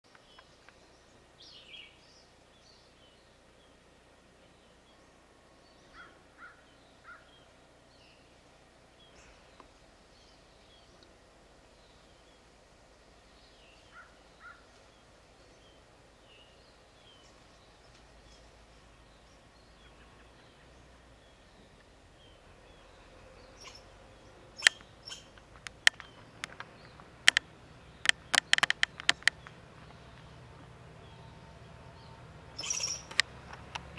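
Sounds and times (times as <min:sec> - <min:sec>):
bird chirps: 0:13.3 - 0:33.3
sharp clicks or snaps: 0:24.6 - 0:29.6, 0:32.8 - 0:33.9.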